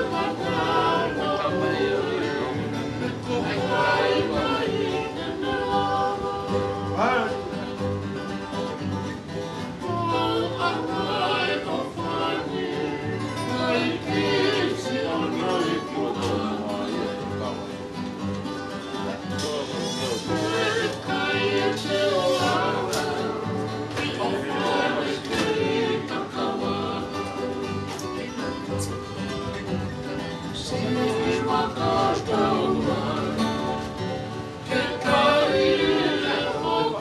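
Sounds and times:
men singing together: 0.0 - 7.4, 9.9 - 17.6, 20.0 - 27.8, 30.6 - 37.0
strummed acoustic guitars: 0.0 - 37.0
ukulele: 0.0 - 37.0.

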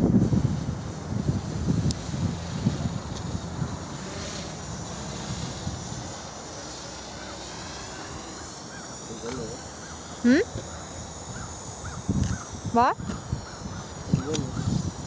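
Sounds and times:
low gusty rumble: 0.0 - 6.6
quadcopter propellers whirring: 0.0 - 15.0.

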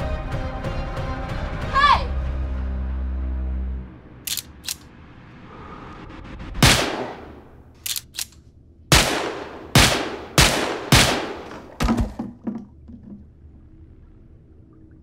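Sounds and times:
gun action clicks: 4.3 - 4.8, 7.1 - 8.4
gunshots with echo: 6.6 - 7.6, 8.9 - 11.8.

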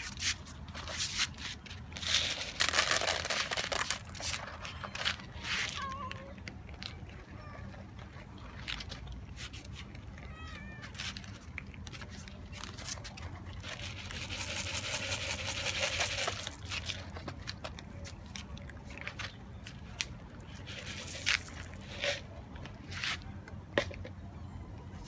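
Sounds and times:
dry cat food poured into bowl: 1.9 - 4.7, 10.9 - 17.5, 20.4 - 22.2
cats meowing: 4.4 - 8.2, 9.9 - 11.5.

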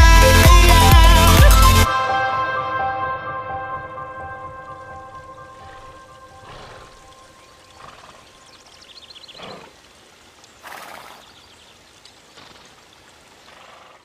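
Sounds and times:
hiss of water: 6.4 - 7.1, 7.7 - 14.0.

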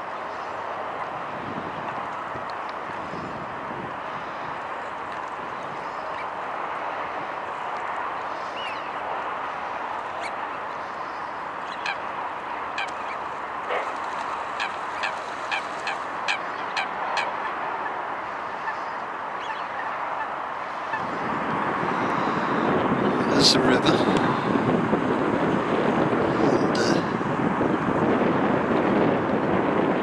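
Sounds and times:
waterfowl calling: 8.3 - 9.0, 10.0 - 12.1, 12.7 - 21.1.

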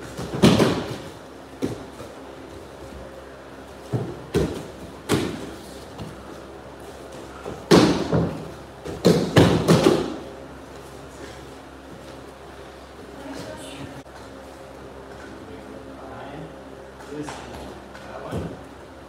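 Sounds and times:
bodies thudding onto mats: 0.0 - 3.0, 3.7 - 6.4, 7.0 - 10.2.

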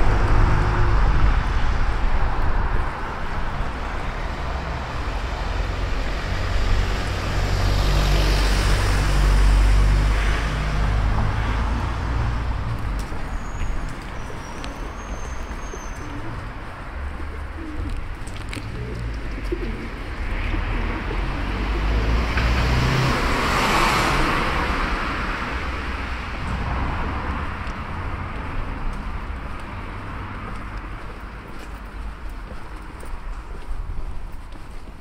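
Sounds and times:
vehicle passing: 0.0 - 32.5
pigeons cooing: 14.2 - 22.1.

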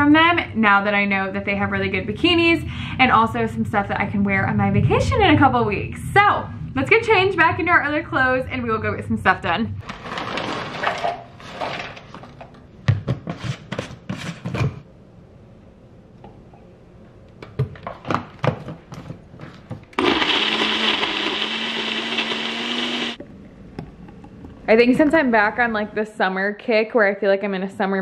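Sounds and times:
blender motor whirring: 20.0 - 23.2.

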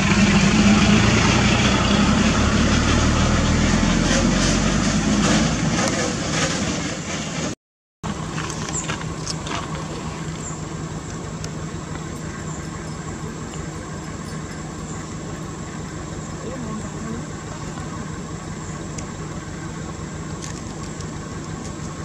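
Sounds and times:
low mechanical hum: 8.0 - 22.0.

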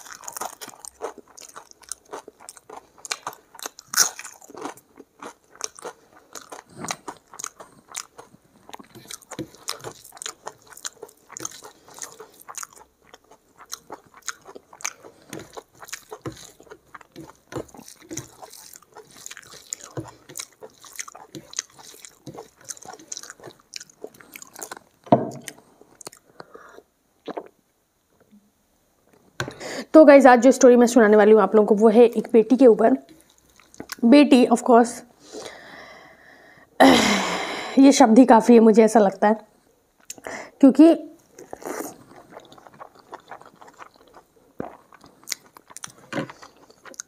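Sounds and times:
person chewing food: 0.0 - 27.6, 33.1 - 34.0, 41.2 - 47.0.

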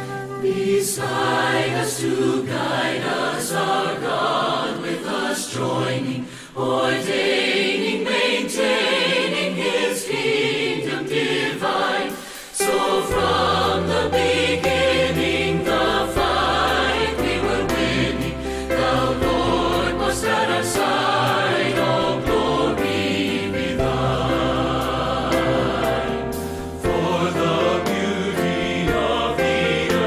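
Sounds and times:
instrumental accompaniment: 0.0 - 2.4, 12.6 - 30.0
choir singing a hymn: 0.0 - 30.0.

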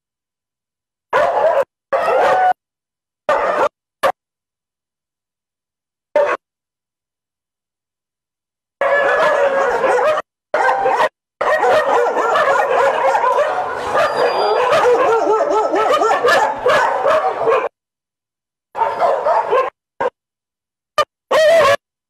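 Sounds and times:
dogs barking and yelping: 1.1 - 2.6, 3.3 - 4.2, 6.2 - 6.4, 8.8 - 17.8, 18.8 - 20.2, 21.3 - 21.8.

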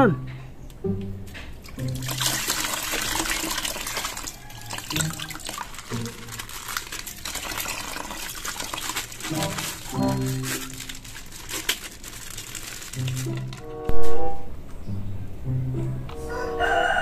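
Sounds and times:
water pouring and splashing: 1.4 - 14.1
wet plastic bag rustling: 1.5 - 14.3.

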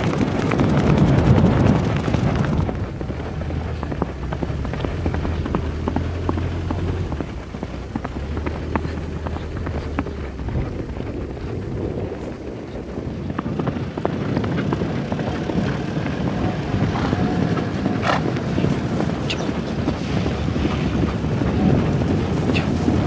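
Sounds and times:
horses galloping: 0.0 - 23.0
suv engine humming: 1.3 - 14.1.

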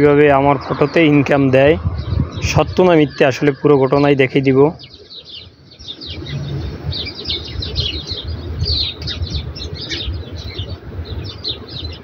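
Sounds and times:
low rumble: 0.0 - 3.7
small birds chirping: 0.0 - 12.0.

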